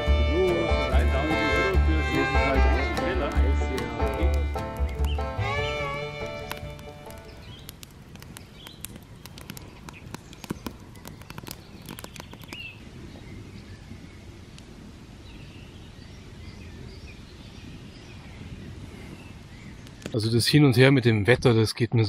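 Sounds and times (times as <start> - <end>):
campfire crackling and popping: 0.0 - 15.4, 18.4 - 20.2.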